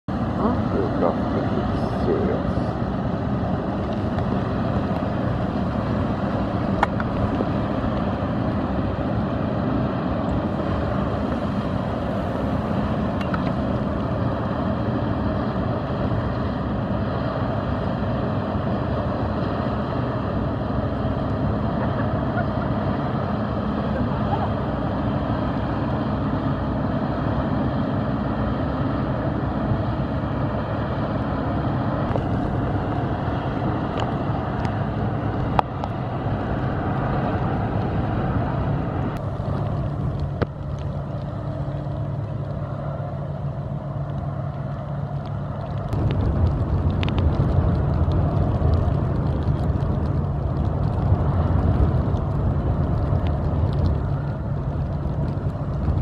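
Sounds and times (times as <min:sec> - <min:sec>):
boat diesel engine drone: 0:00.0 - 0:56.0
water washing along hull: 0:00.1 - 0:56.0.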